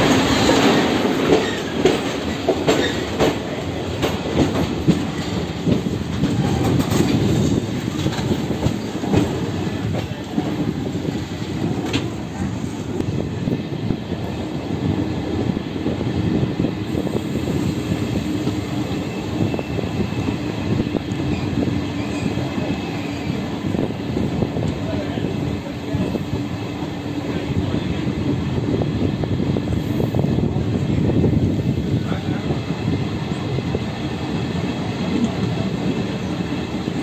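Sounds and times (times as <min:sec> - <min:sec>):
clickety-clack over rail joints: 0:00.0 - 0:37.0
train wheels rumbling: 0:00.0 - 0:37.0.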